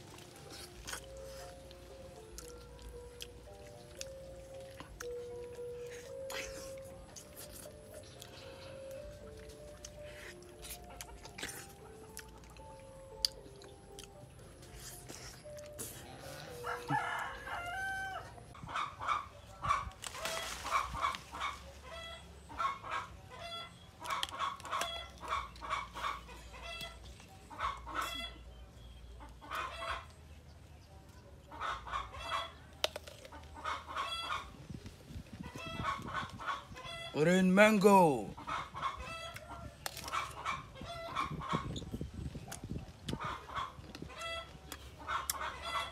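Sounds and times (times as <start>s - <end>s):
chickens clucking: 0.1s - 37.2s, 38.1s - 45.9s.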